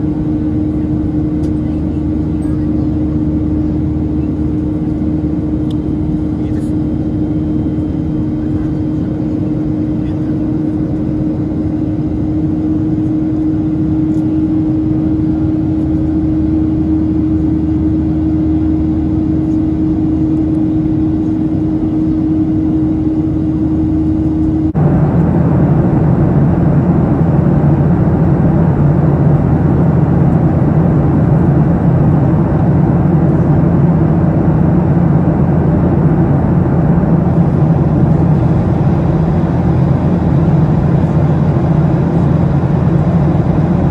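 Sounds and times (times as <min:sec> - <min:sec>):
jet engines droning: 0:00.0 - 0:43.9
steady hum: 0:00.0 - 0:43.9
rush of air in cabin: 0:24.0 - 0:43.9.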